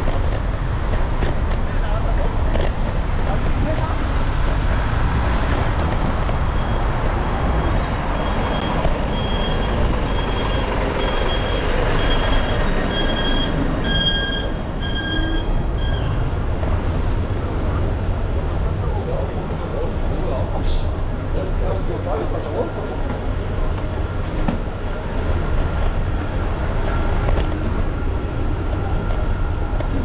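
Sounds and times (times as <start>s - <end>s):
truck warning beeps: 6.5s - 6.9s, 7.5s - 16.2s.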